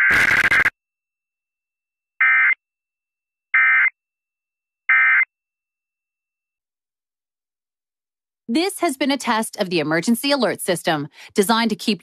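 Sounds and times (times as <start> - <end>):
buzzing digital data tones: 0.0 - 0.7.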